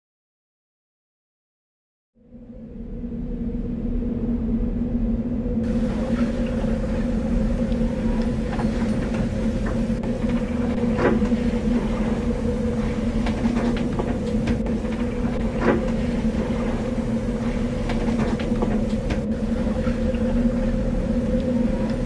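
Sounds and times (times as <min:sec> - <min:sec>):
boat engine droning: 0:02.2 - 0:22.0
light clicks and creaks: 0:05.8 - 0:20.3.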